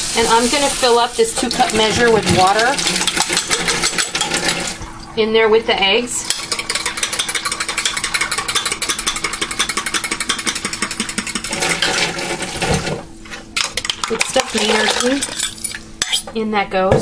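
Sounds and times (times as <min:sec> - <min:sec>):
utensil clattering against cup: 0:02.2 - 0:04.7, 0:06.3 - 0:13.0.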